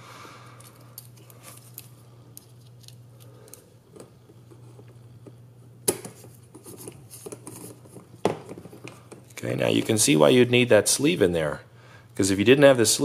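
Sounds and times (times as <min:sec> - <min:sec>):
low steady hum: 0:00.0 - 0:13.0
small parts clicking and tapping: 0:00.6 - 0:04.1.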